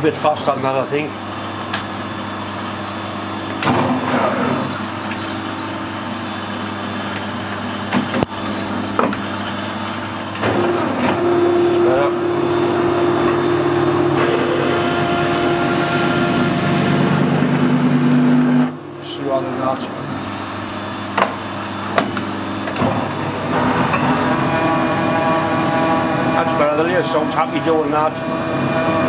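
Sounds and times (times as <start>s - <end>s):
drill whining through steel: 0.5s - 3.7s, 20.0s - 22.9s
metal lathe humming: 0.5s - 17.4s, 20.0s - 29.0s.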